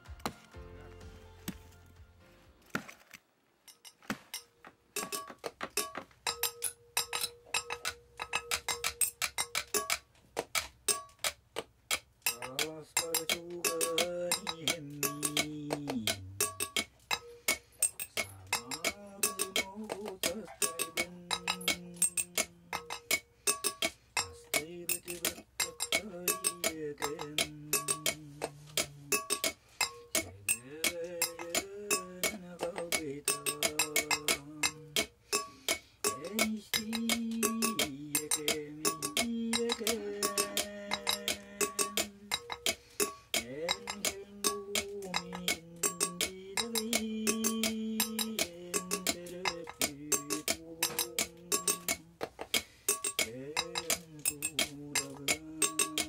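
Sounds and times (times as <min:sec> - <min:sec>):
spoon clinking against glass: 0:03.7 - 0:10.0, 0:12.2 - 0:56.0
man singing slowly: 0:12.3 - 0:16.7, 0:18.3 - 0:23.0, 0:24.4 - 0:29.4, 0:30.2 - 0:35.1, 0:36.1 - 0:42.6, 0:43.4 - 0:52.2, 0:53.2 - 0:56.0.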